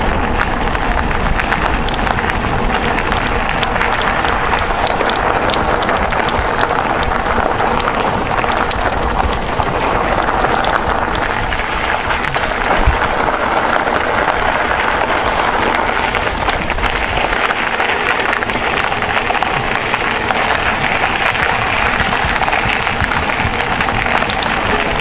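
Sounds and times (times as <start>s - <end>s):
bike tyres crackling on gravel: 0.0s - 25.0s
wind on microphone: 0.0s - 25.0s
small clicks and rattles: 0.5s - 25.0s.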